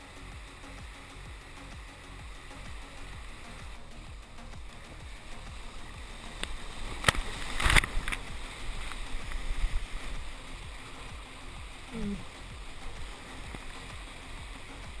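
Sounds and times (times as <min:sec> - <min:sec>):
rushing water: 0:00.0 - 0:15.0
paddle strokes and splashes: 0:04.5 - 0:15.0.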